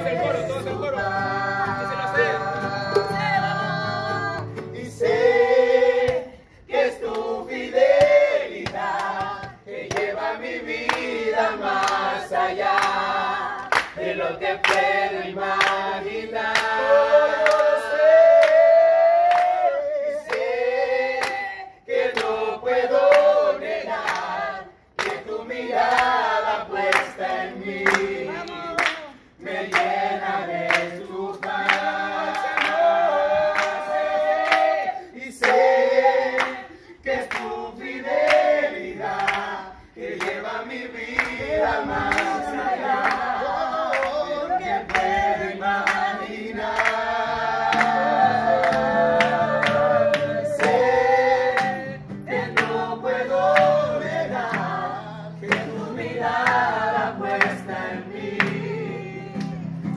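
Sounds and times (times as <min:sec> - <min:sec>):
group singing worship song: 0:00.0 - 0:59.9
sharp claps: 0:07.0 - 0:10.2, 0:12.7 - 0:15.9, 0:25.0 - 0:25.3, 0:26.9 - 0:30.0, 0:39.2 - 0:39.5, 0:45.8 - 0:47.0, 0:47.7 - 0:48.0, 0:55.5 - 0:55.8.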